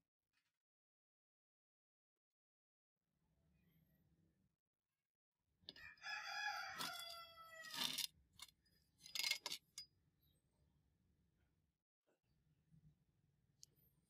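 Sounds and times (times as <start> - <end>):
rooster crowing: 5.8 - 8.0.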